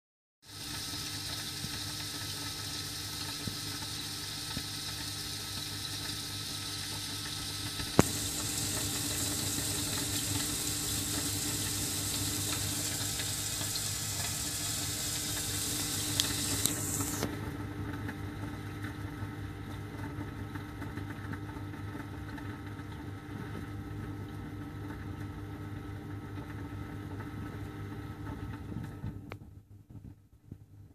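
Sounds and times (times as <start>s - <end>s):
rushing trickling water: 0.5s - 17.3s
pump hum: 0.5s - 29.2s
click: 16.0s - 17.3s.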